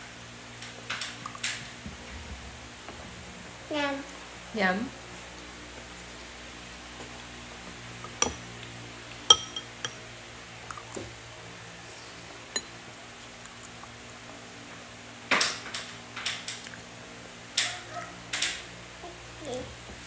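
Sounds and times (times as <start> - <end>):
utensils clinking against a bowl: 8.0 - 8.5, 9.3 - 10.0, 12.5 - 12.8.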